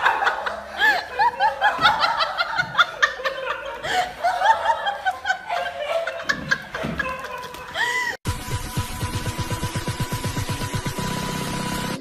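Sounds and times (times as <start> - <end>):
people laughing and giggling: 0.0 - 8.2.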